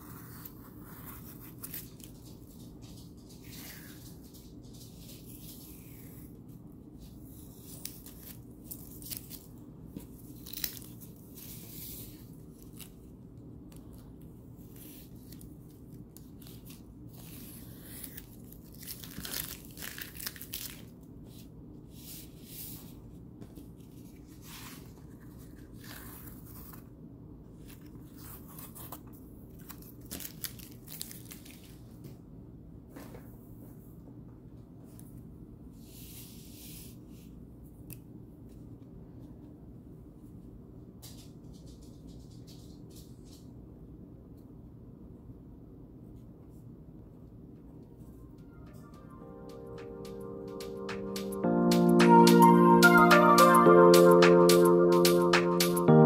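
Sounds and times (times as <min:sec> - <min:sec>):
paper rustling: 0:00.0 - 0:13.1, 0:13.8 - 0:26.9.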